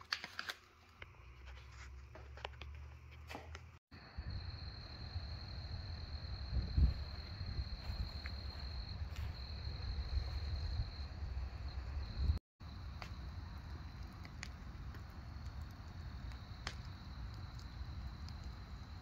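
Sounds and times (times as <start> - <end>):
wood fire crackling: 4.9 - 19.0
fire popping: 6.3 - 19.0.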